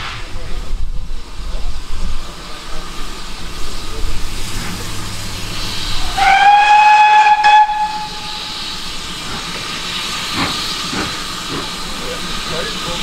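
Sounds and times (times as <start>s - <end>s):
steam hissing: 0.0s - 13.0s
steam locomotive whistle: 5.6s - 8.7s.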